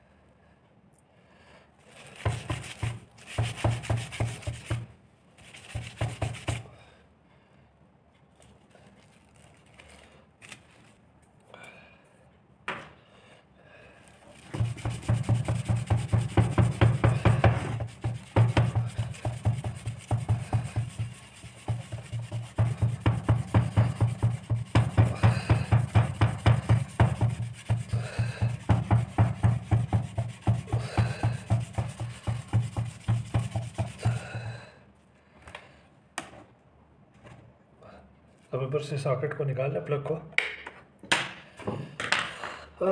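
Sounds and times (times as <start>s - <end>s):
sandpaper scrubbing metal: 2.2s - 4.8s, 5.4s - 6.6s, 14.4s - 34.2s.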